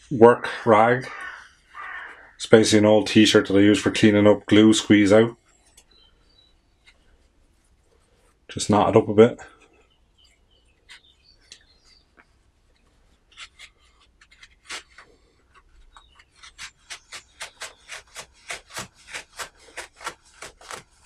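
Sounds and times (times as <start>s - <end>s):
serrated blade sawing cloth: 13.2s - 21.0s.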